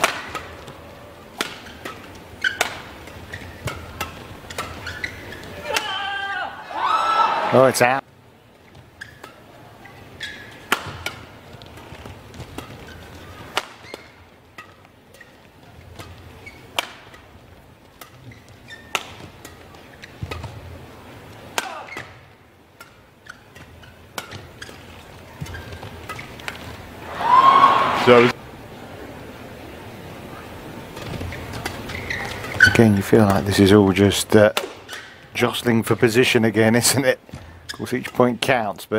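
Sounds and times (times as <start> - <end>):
rackets striking shuttlecock: 0.0 - 6.0, 10.2 - 20.7, 21.3 - 26.8, 34.5 - 35.2.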